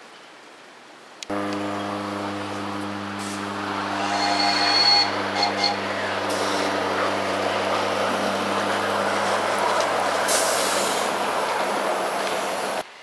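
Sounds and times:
miniature train wheel noise: 3.2 - 12.8.

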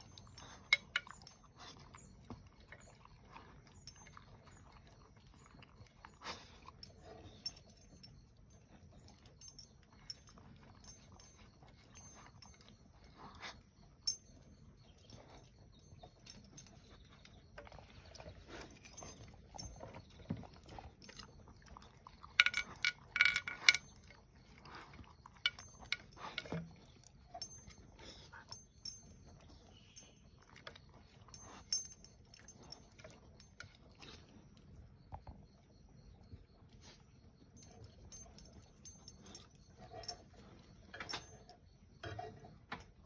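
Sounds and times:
collar tags clinking: 0.0 - 2.9, 3.7 - 34.3, 37.4 - 43.0
dog licking and eating: 0.0 - 23.2.

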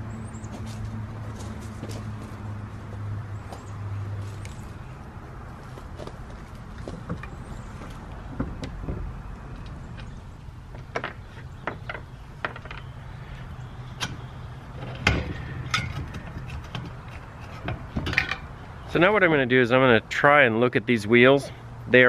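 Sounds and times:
metal parts clicking and knocking: 14.8 - 18.6.

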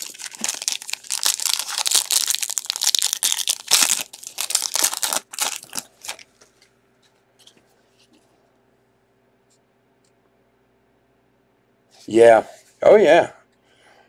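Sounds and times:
foil wrapper tearing and crinkling: 0.0 - 6.3.

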